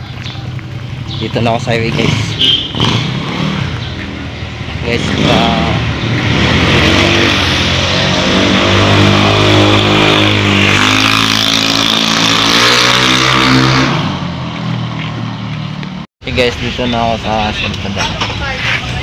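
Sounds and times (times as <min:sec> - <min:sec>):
vehicle engines passing: 0:00.0 - 0:19.0.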